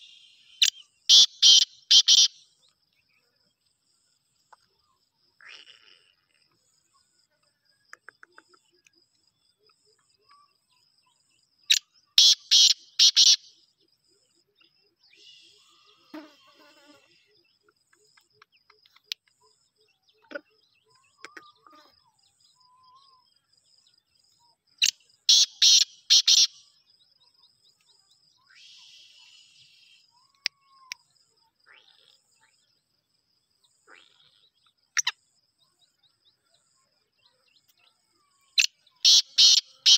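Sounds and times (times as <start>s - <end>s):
francolin calling: 0.0s - 2.6s, 7.9s - 13.9s, 24.8s - 31.1s, 37.2s - 39.9s.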